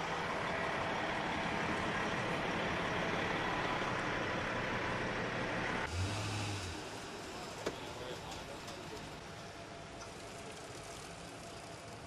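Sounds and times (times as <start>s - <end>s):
heavy diesel engine idling: 0.0s - 5.8s.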